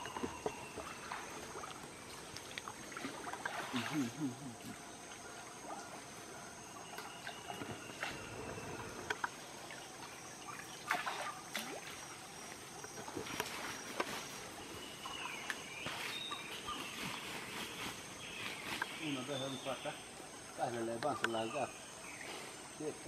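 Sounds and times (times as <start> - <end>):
fishing net splashing in water: 2.7 - 4.3, 10.5 - 12.1.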